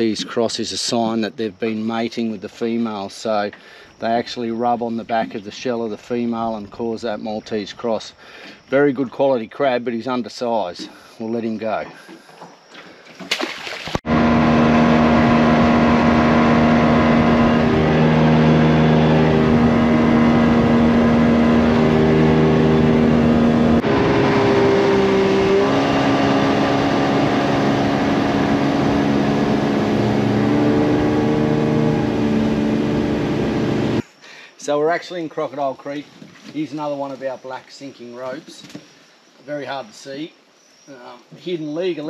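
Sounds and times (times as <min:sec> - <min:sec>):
boat motor running: 0:14.0 - 0:34.0.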